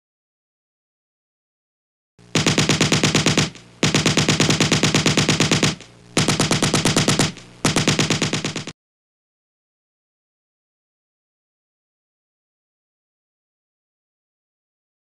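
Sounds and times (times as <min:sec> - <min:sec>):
machine-gun fire: 0:02.3 - 0:08.8.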